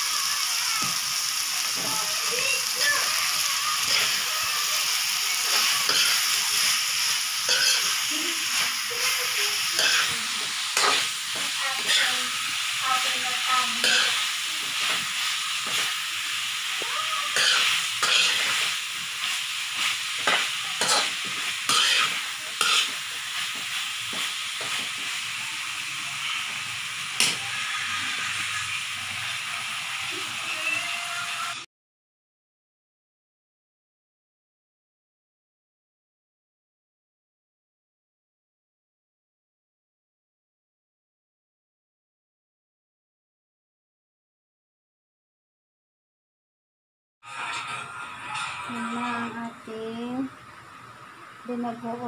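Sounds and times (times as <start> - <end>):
vegetables sizzling in a wok: 0.0 - 31.7, 47.2 - 52.0
metal spoon scraping a pan: 3.8 - 4.2, 4.8 - 16.0, 17.3 - 25.2, 27.1 - 27.5.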